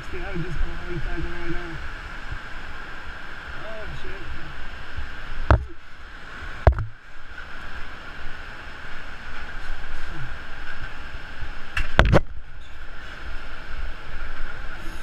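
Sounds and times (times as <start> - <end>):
distant whitewater river: 0.0 - 15.0
sharp knocks: 5.5 - 5.8, 6.6 - 7.0.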